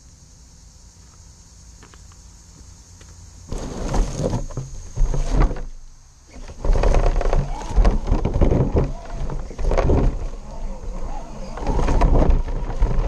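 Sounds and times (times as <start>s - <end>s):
tyres scrabbling on rock: 3.5s - 13.0s
rc car drivetrain whirring: 6.3s - 13.0s
tyres crunching leaves and twigs: 6.3s - 13.0s.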